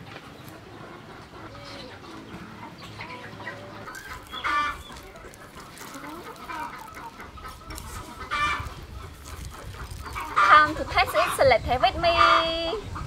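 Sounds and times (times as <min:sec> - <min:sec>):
chickens clucking: 0:00.0 - 0:13.0
loud chicken calls: 0:01.0 - 0:11.5.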